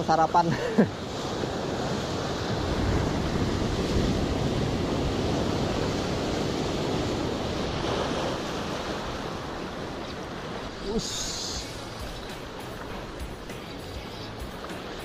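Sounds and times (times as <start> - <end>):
surf breaking on rocks: 0.9 - 15.0
wind buffeting microphone: 1.1 - 10.9.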